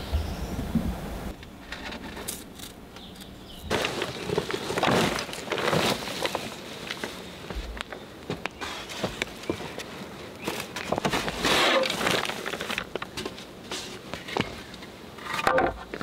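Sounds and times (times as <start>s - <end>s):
footsteps on forest ground: 3.4s - 11.4s
backpack rustling and scraping: 3.5s - 16.0s.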